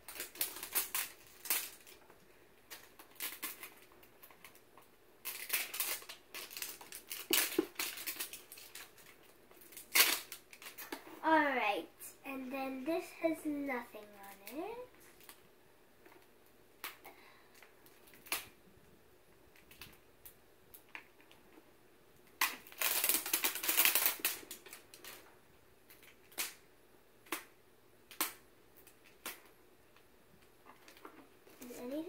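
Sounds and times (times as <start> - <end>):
plastic wrapping crinkling: 0.0 - 11.1, 22.3 - 26.6.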